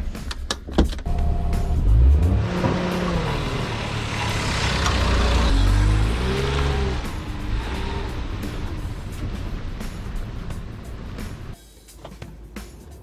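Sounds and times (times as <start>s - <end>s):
small engine accelerating: 1.8s - 8.9s.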